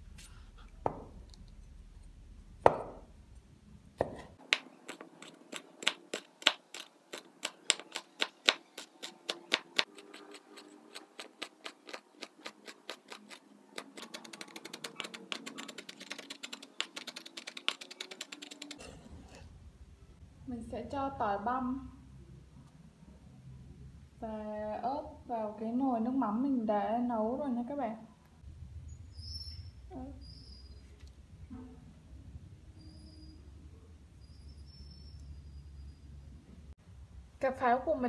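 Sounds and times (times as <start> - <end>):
cleaver chopping on wooden board: 4.0 - 5.0.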